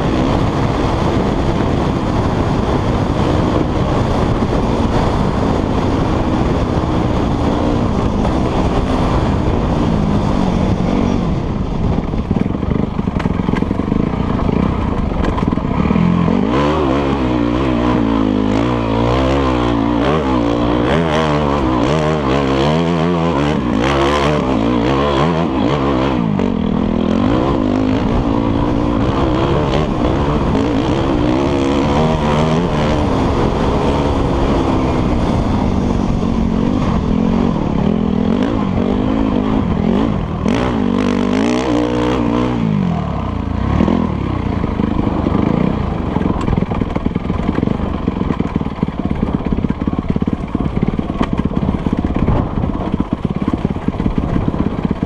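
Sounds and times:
dirt bike engine revving: 0.0s - 55.0s.

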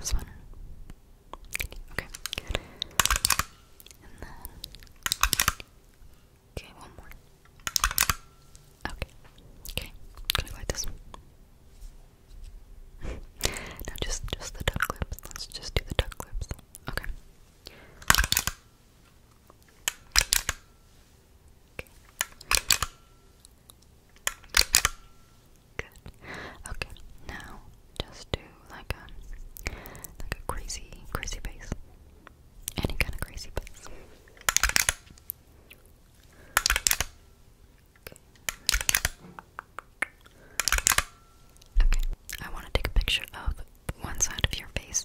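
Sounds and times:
camera clicks: 2.1s - 3.6s, 4.8s - 5.7s, 7.6s - 8.3s, 18.0s - 18.6s, 19.7s - 20.7s, 22.1s - 23.0s, 24.2s - 25.0s, 34.4s - 35.3s, 36.5s - 37.2s, 38.4s - 39.2s, 40.6s - 41.2s.

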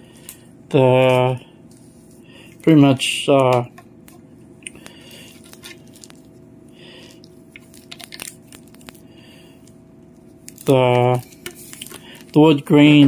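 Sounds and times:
steady low hum: 0.0s - 13.0s
vinyl roll clicks and crinkles: 4.8s - 6.3s, 7.6s - 9.0s, 10.4s - 12.7s.

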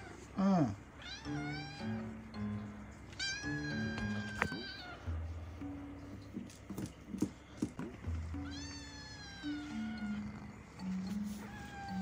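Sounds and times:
background music with low notes: 0.0s - 12.0s
cat meowing: 1.0s - 2.1s, 3.2s - 5.1s, 8.3s - 10.3s, 11.2s - 12.0s.

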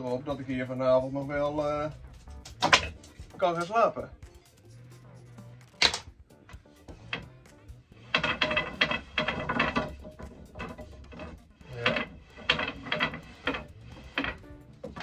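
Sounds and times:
wooden slats clattering: 2.3s - 3.8s, 8.0s - 15.0s.

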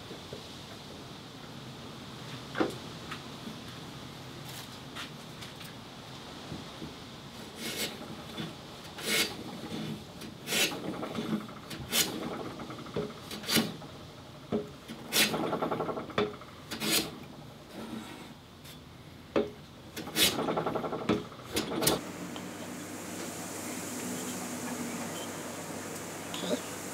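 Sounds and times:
hand plane rasping on board: 7.6s - 12.4s, 16.7s - 18.4s.

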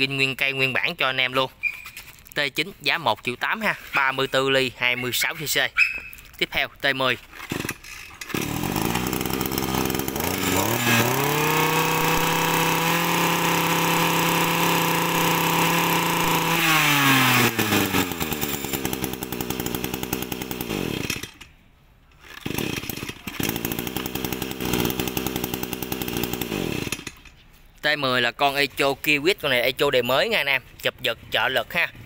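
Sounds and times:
brush cutter engine revving: 7.2s - 21.5s, 22.1s - 27.3s.

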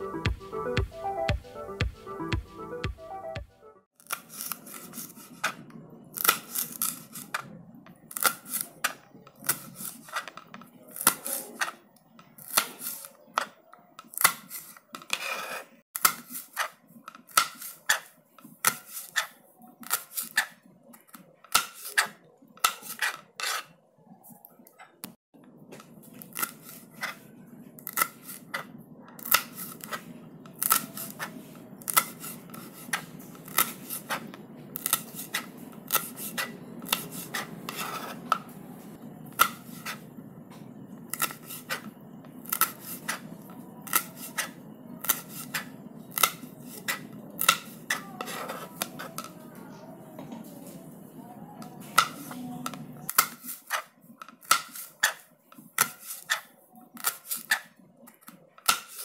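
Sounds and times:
knife chopping on cutting board: 27.8s - 38.6s, 39.4s - 40.0s.

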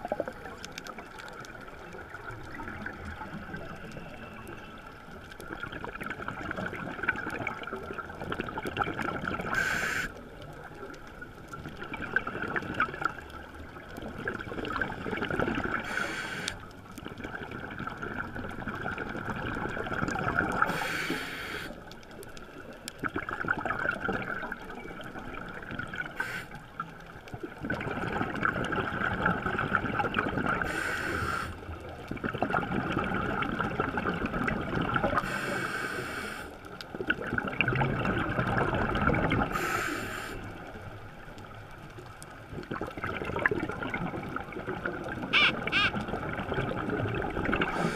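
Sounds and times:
gurgling exhaled bubbles: 5.2s - 16.4s, 17.0s - 21.0s, 22.9s - 26.2s, 27.3s - 35.5s, 36.9s - 39.8s, 40.6s - 47.9s
regulator inhale hiss: 9.5s - 10.2s, 15.8s - 16.6s, 20.6s - 21.8s, 26.2s - 26.6s, 30.6s - 31.6s, 35.2s - 36.6s, 39.5s - 40.6s.

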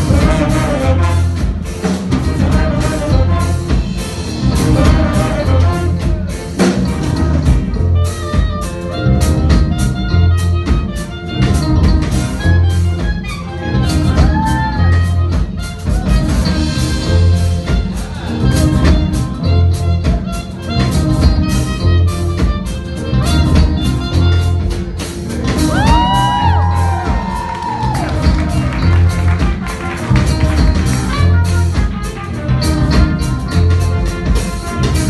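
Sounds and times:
bending horn phrase: 0.0s - 14.2s
live band playing: 0.0s - 35.0s.

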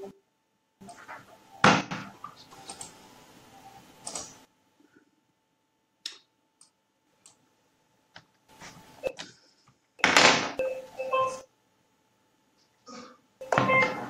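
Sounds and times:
computer mouse clicks: 2.6s - 3.0s, 4.0s - 4.4s.

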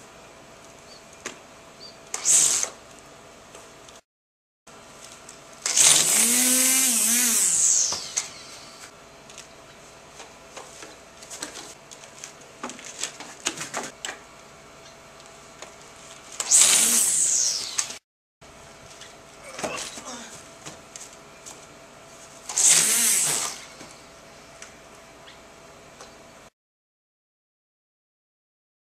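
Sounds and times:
string trimmer motor whining: 5.6s - 8.9s, 16.4s - 18.0s, 22.5s - 23.9s.

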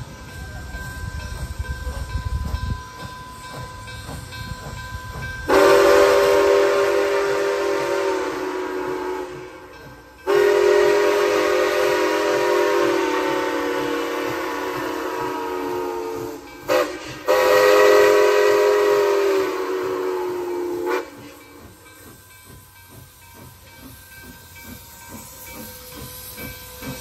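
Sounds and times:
steam locomotive exhaust beats: 0.0s - 27.0s
steam whistle blasts: 5.4s - 21.8s.

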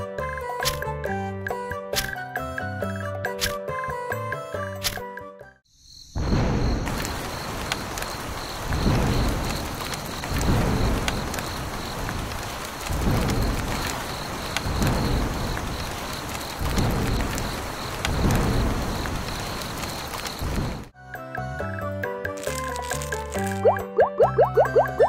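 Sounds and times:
deep thunder rumbles: 6.2s - 20.9s
heavy rain hissing: 6.8s - 20.9s
raindrop ticks: 6.9s - 20.9s, 22.4s - 25.0s.

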